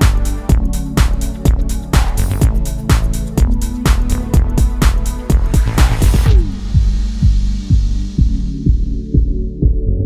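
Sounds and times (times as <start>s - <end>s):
electronic music kick drum: 0.0s - 10.0s
low synth notes: 0.0s - 10.0s.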